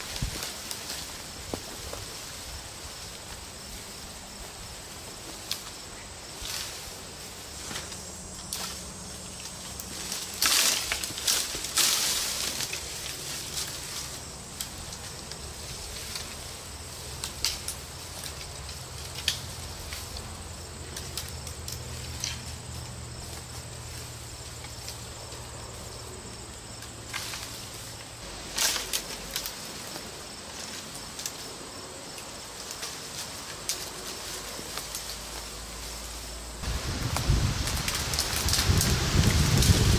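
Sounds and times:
branches rustling and crackling: 0:00.0 - 0:39.9
insect drone: 0:00.0 - 0:39.9
twigs snapping: 0:09.4 - 0:13.8, 0:28.3 - 0:31.5, 0:36.6 - 0:39.9.

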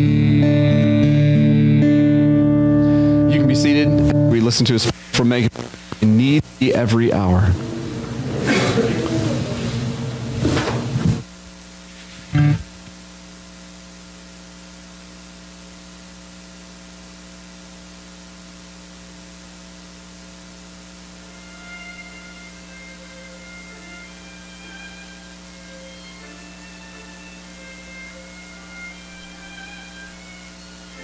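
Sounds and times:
electrical mains hum: 0:00.0 - 0:31.0
faint high notes: 0:07.5 - 0:11.0, 0:21.3 - 0:31.0.

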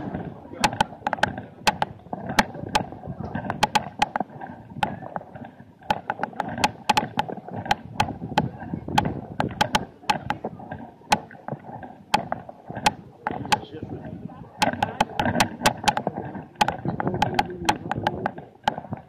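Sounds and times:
murmur of many voices: 0:00.0 - 0:03.6, 0:13.0 - 0:18.4
sharp irregular clicks and knocks: 0:00.0 - 0:19.0.

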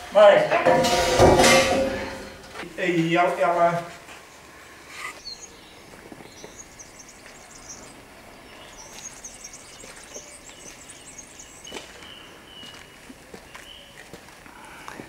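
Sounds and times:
small birds chirping: 0:04.2 - 0:14.7.

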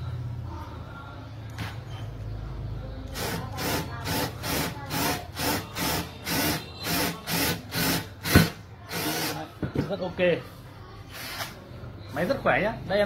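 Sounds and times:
cordless drill in short bursts: 0:08.9 - 0:09.4.

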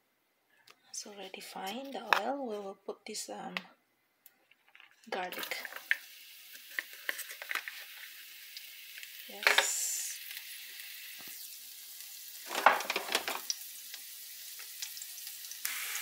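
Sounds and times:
garlic sizzling in oil: 0:05.3 - 0:16.0.

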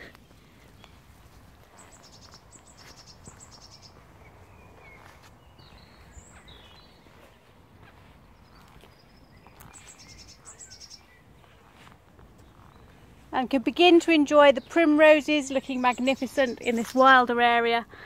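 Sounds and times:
bird calls: 0:00.0 - 0:13.1
songbird high chirps: 0:00.6 - 0:17.8.

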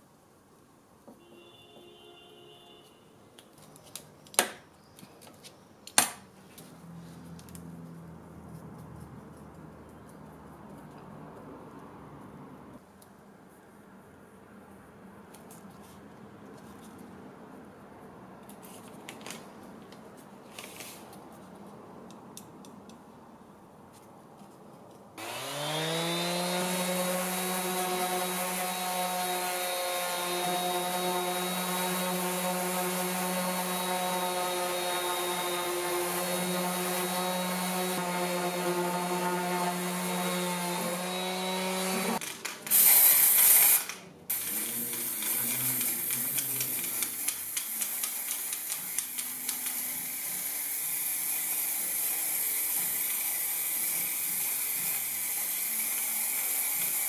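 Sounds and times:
orbital sander on wood: 0:25.2 - 0:42.2, 0:44.3 - 0:57.0.

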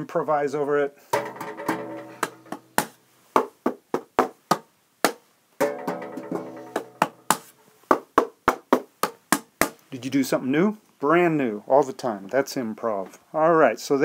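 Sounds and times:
sharp wooden knocks: 0:01.1 - 0:09.8
ringing pitched instrument notes: 0:05.6 - 0:07.3.

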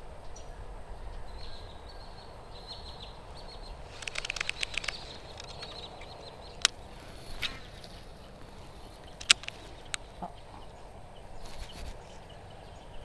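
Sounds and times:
high bird chirps: 0:01.3 - 0:13.0
fishing reel clicks: 0:03.9 - 0:05.9.

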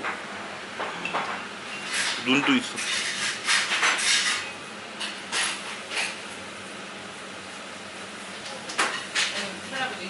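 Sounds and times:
short rustling or scraping: 0:01.8 - 0:04.5.

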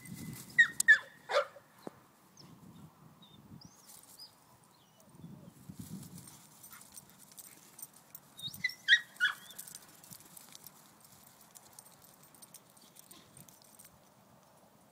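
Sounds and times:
dogs rustling on grass: 0:00.0 - 0:00.8, 0:03.7 - 0:04.4, 0:05.5 - 0:13.9
dog yipping: 0:00.6 - 0:01.6, 0:08.4 - 0:09.7.

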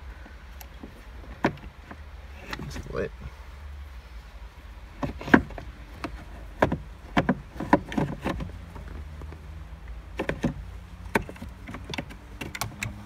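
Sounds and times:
plastic parts clicking and knocking: 0:00.6 - 0:02.9, 0:05.0 - 0:09.5, 0:10.1 - 0:13.0.

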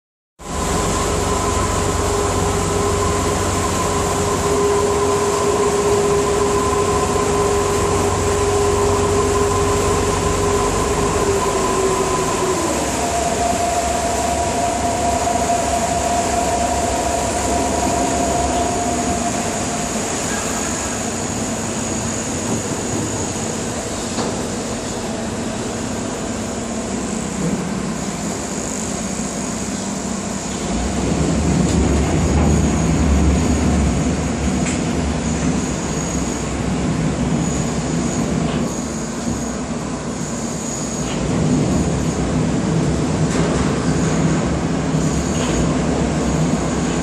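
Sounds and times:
water rushing past hull: 0:00.4 - 0:38.0
boat engine running: 0:00.4 - 0:38.5.

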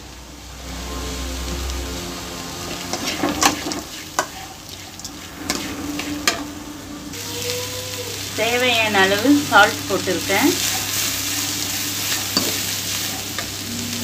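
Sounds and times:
vegetables sizzling in hot oil: 0:00.0 - 0:06.5, 0:07.1 - 0:14.0
metal spatula scraping pan: 0:02.6 - 0:06.6, 0:09.0 - 0:13.6.

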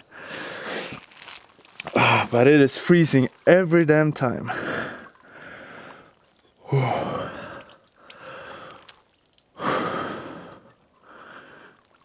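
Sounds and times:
man breathing heavily: 0:00.0 - 0:00.9, 0:04.5 - 0:08.9, 0:09.6 - 0:11.8.

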